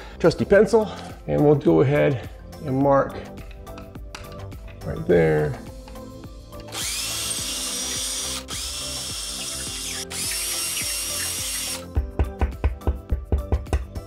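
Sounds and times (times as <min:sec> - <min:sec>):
power drill boring: 0:06.6 - 0:11.8.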